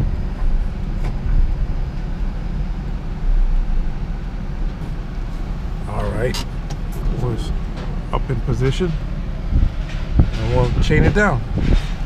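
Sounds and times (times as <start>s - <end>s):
low vehicle rumble in cabin: 0.0s - 12.0s.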